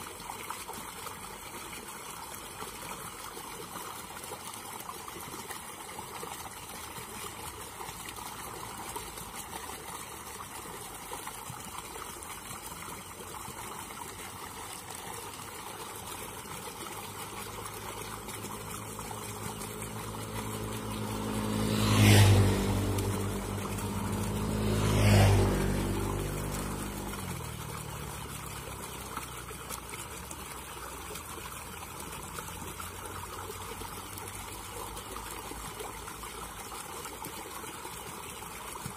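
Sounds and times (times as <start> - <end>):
water trickling: 0.0 - 38.9
motor vehicle passing: 17.1 - 36.8.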